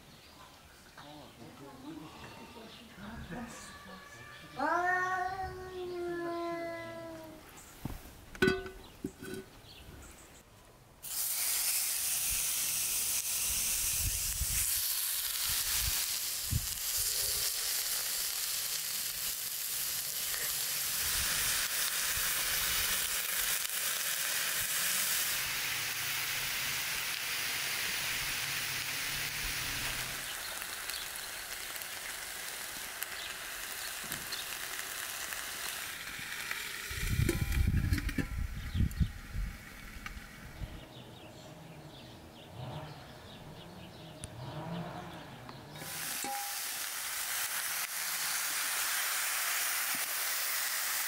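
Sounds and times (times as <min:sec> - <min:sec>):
food frying in hot oil: 0:11.0 - 0:37.8, 0:45.8 - 0:51.0.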